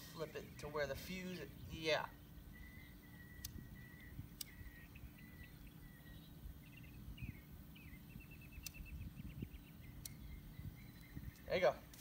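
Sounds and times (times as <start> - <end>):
high-pitched chirping and trilling: 1.3 - 11.6
sharp clicks: 3.4 - 3.6, 4.4 - 4.6, 8.6 - 8.9, 10.0 - 10.3.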